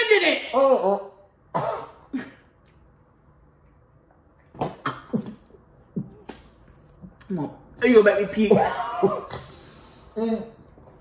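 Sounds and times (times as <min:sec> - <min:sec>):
people coughing gagging bursts: 0:01.5 - 0:02.5, 0:04.6 - 0:05.6, 0:08.4 - 0:09.6.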